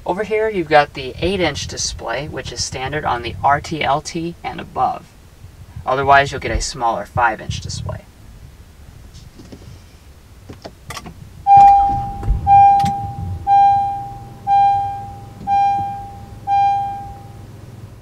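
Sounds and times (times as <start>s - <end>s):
car engine starting and idling: 0.0s - 18.0s
clicks: 10.6s - 13.2s
dashboard warning chime: 11.4s - 18.0s.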